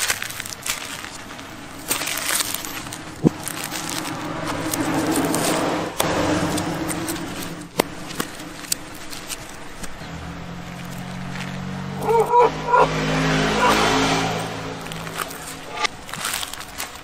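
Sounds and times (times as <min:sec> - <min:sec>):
knife scraping coconut husk: 0:00.0 - 0:10.0, 0:13.5 - 0:17.0.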